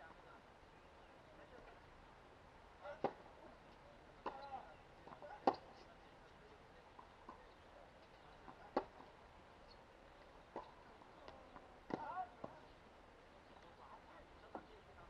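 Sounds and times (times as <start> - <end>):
tennis ball pops: 4.2 - 4.4, 5.1 - 5.7.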